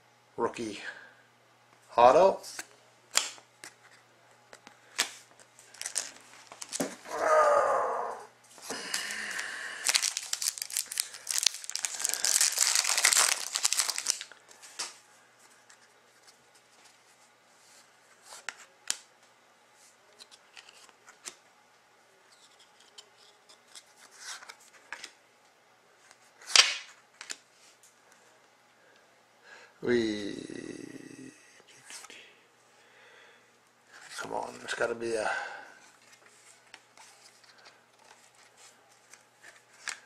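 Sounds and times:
cards being handled: 2.5 - 7.2, 8.7 - 17.0, 20.2 - 21.4, 22.3 - 25.2, 26.0 - 27.5, 35.8 - 40.0
card pack wrapper tearing and crinkling: 5.7 - 7.2, 8.7 - 14.9.

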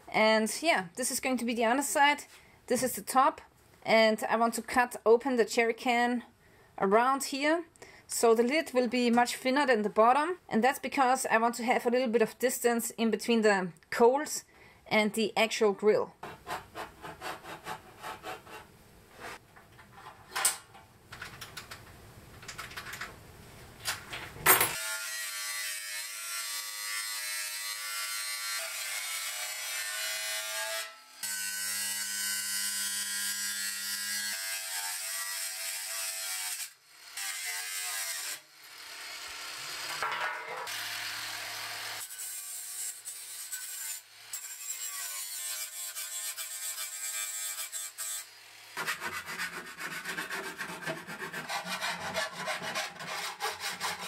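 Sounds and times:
angle grinder cutting steel: 24.7 - 54.0.

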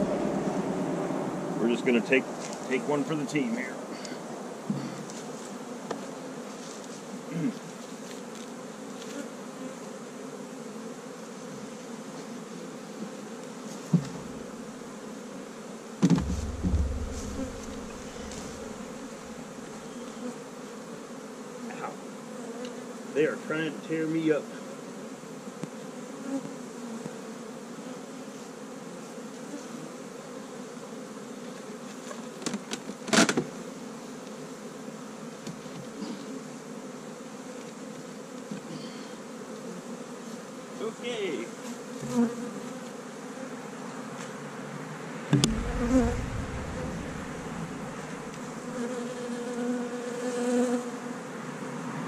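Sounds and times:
bees buzzing: 0.0 - 51.8
low thump: 13.9 - 14.5, 16.0 - 19.4, 45.3 - 48.4
sharp knock: 16.0 - 18.9, 45.3 - 48.3.

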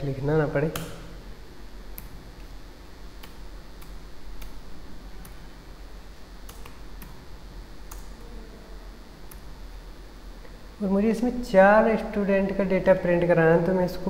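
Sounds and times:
electrical hum: 0.0 - 14.0.

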